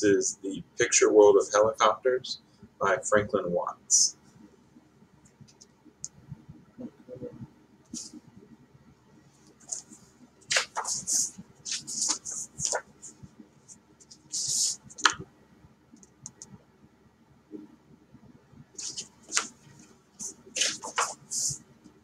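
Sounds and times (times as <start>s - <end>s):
book pages rustling: 9.4s - 13.2s, 18.8s - 21.6s.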